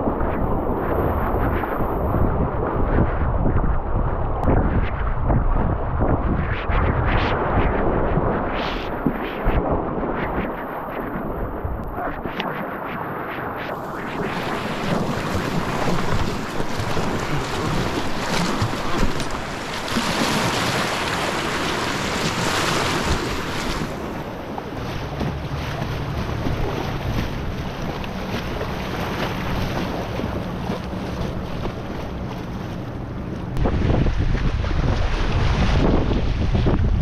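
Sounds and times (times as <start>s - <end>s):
wind buffeting microphone: 0.0s - 37.0s
water rushing and splashing: 7.6s - 37.0s
paddle dipping in water: 8.4s - 37.0s.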